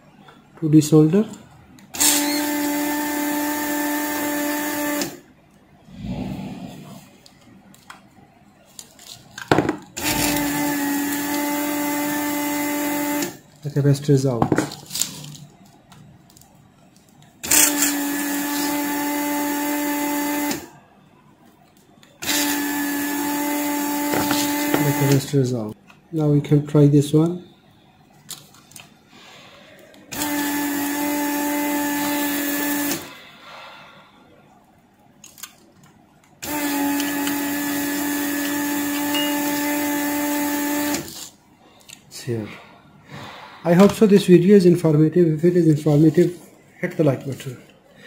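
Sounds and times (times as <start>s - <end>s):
vacuum pump humming: 22.2s - 25.3s, 30.1s - 33.1s
vacuum pump hum and hiss: 23.7s - 25.3s.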